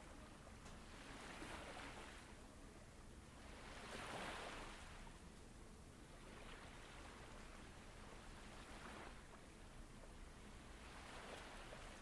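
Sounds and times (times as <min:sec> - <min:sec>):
ocean waves washing in: 0:03.2 - 0:05.2, 0:06.0 - 0:12.0.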